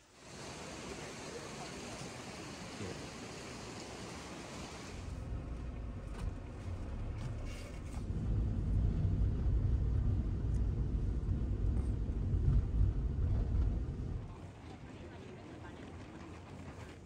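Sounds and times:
engine and road rumble: 4.9s - 14.4s.

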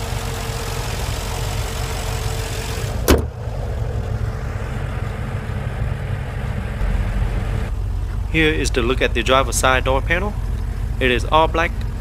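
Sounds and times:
car engine idling: 0.0s - 12.0s
car bonnet slammed shut: 2.9s - 3.5s.

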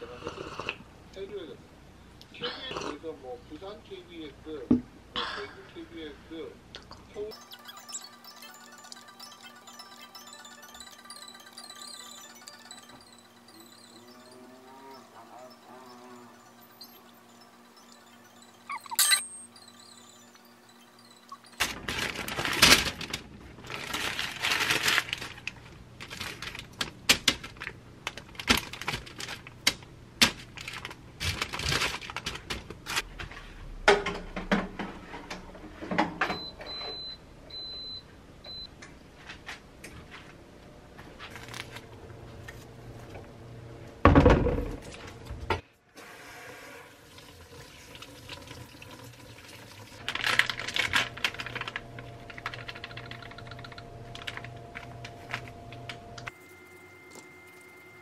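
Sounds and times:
short high beeps: 7.3s - 21.8s
parchment paper crinkling: 21.8s - 32.8s, 50.0s - 53.6s.

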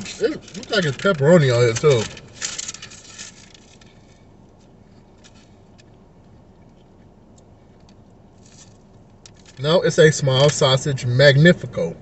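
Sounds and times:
paper crinkling: 0.0s - 4.2s
car cabin hum: 0.0s - 12.0s.

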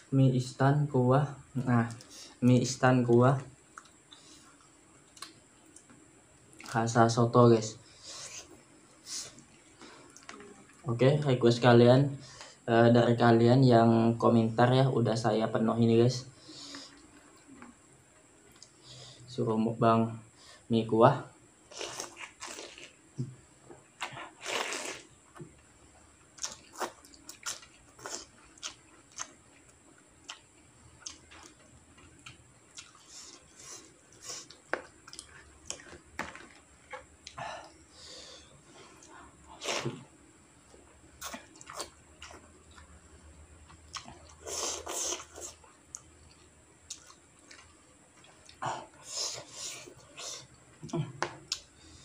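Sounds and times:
slurping and chewing noodles: 21.7s - 23.0s, 24.1s - 25.1s, 26.4s - 29.3s, 43.9s - 47.7s.

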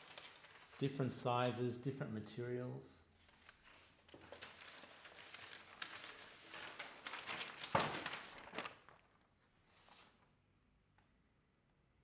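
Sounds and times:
paper rustling and crinkling: 0.0s - 1.1s, 3.2s - 10.3s.

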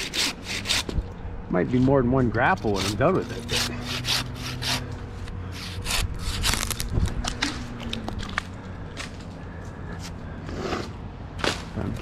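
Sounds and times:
handsaw cutting wood: 0.0s - 1.0s, 2.6s - 7.5s.

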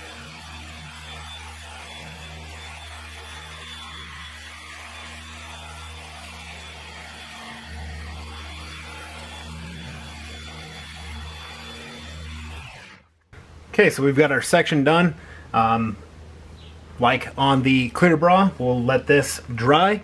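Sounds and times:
electric polisher humming: 0.0s - 13.1s.

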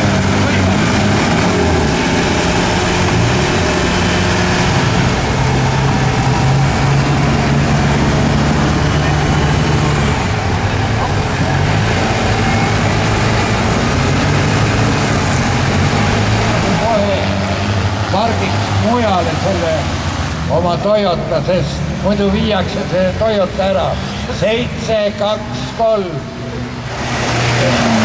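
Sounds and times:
off-road engines revving: 0.0s - 28.0s.

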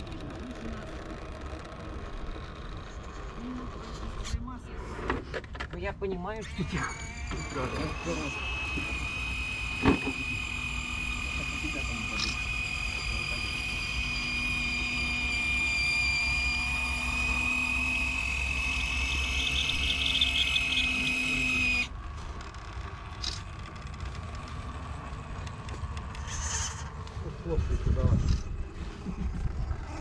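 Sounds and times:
electric winch motor whining: 0.0s - 5.3s, 6.2s - 30.0s.

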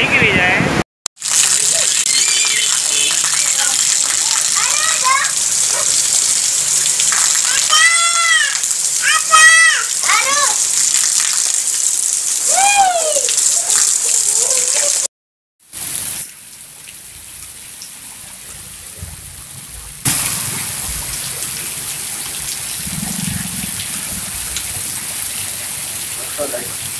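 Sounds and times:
heavy rain hissing: 1.2s - 15.1s, 15.7s - 26.9s
child squealing: 7.4s - 10.6s, 12.5s - 13.4s.

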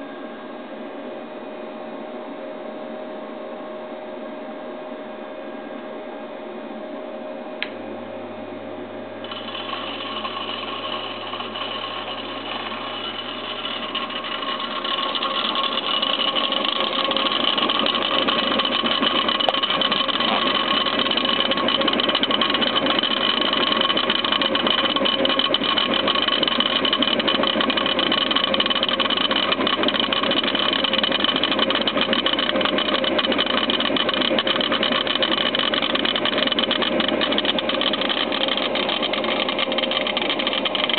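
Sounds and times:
machine motor whirr and hum: 9.2s - 40.9s
light rapid ticking: 9.3s - 40.9s.

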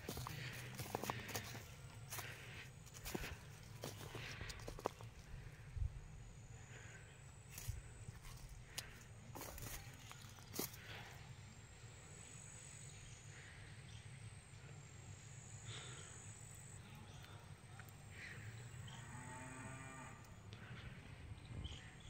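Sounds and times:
quiet rural background: 0.0s - 22.0s
cow mooing: 18.9s - 20.3s.

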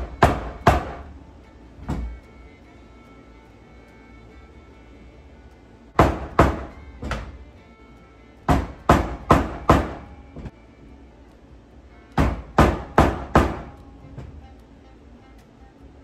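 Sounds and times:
mallet striking hand punch: 0.0s - 1.1s, 6.0s - 7.3s, 8.5s - 10.2s, 12.2s - 13.8s.

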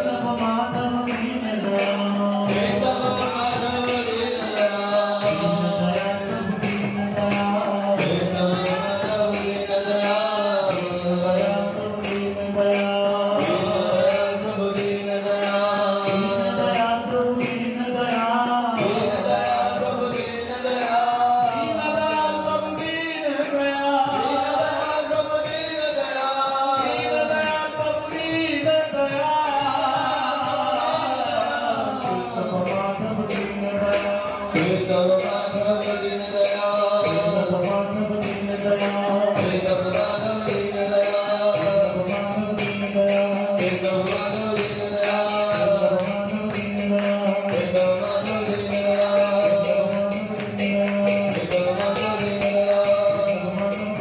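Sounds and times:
hand cymbals struck: 0.0s - 54.0s
voices chanting: 18.7s - 42.8s.

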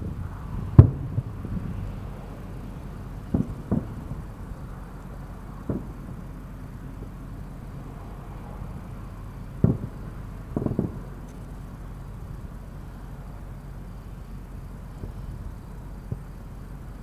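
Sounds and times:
steady low rumble: 0.0s - 17.0s
firework shells bursting: 3.2s - 7.8s, 8.7s - 12.8s.

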